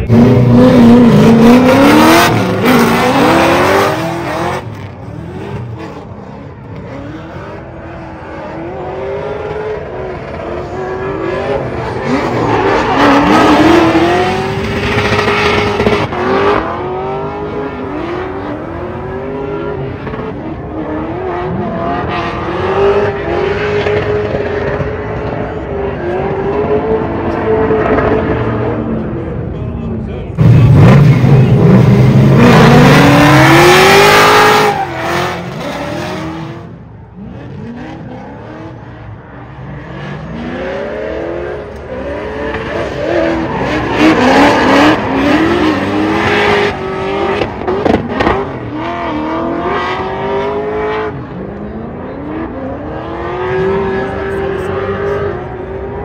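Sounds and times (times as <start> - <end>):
car engines revving: 0.0 - 56.0
tyre squeal: 34.4 - 35.6.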